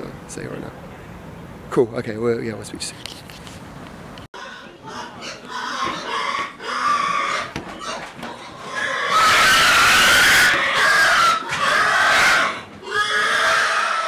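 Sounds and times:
pigs squealing: 4.4s - 14.0s.

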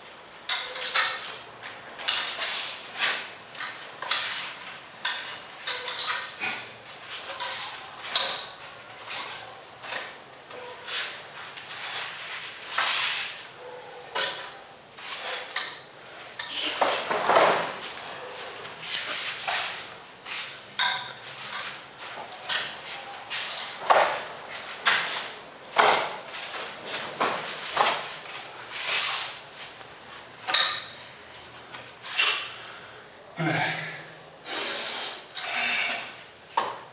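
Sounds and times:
staff swishing through air: 16.4s - 29.8s.

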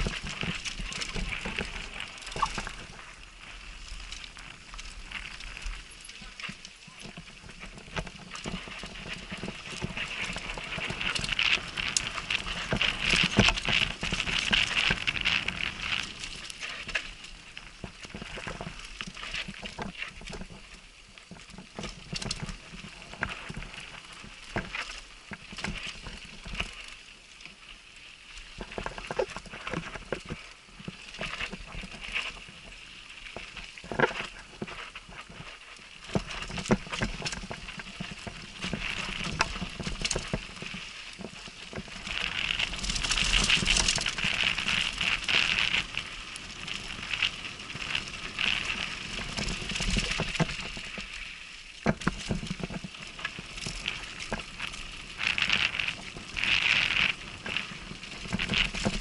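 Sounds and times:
bike tyres crunching on gravel: 0.0s - 59.0s.

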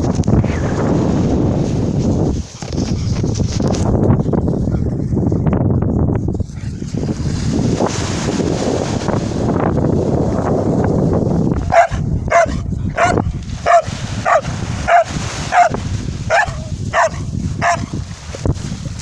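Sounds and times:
wind rumble on microphone: 0.0s - 19.0s
dog barking: 11.6s - 18.0s.

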